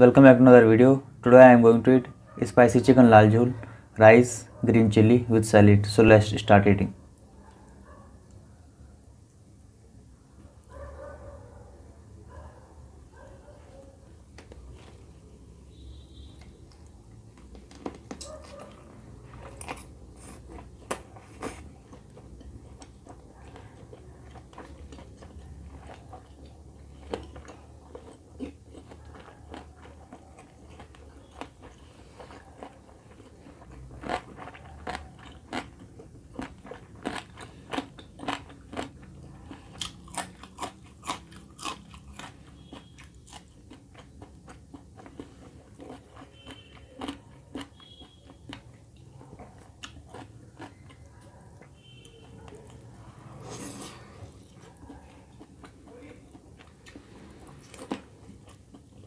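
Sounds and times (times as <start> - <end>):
person chewing food: 13.2 - 59.0.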